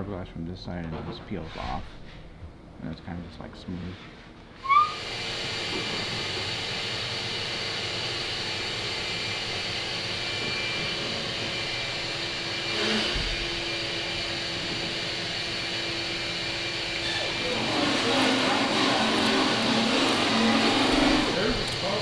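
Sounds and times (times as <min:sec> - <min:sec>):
machinery rushing noise: 0:09.2 - 0:22.0.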